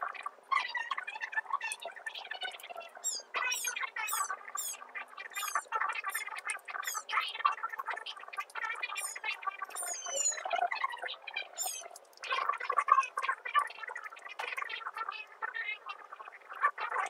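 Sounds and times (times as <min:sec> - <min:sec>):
birds chirping: 0:02.5 - 0:07.2, 0:08.8 - 0:10.6, 0:11.5 - 0:12.0.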